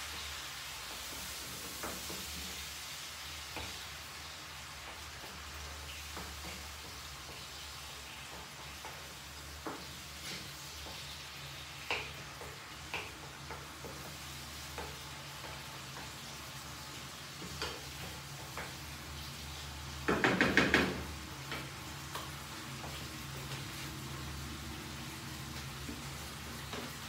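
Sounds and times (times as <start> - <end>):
spatula scraping a pan: 0.0 - 19.7
sauce sizzling in a frying pan: 0.0 - 27.0.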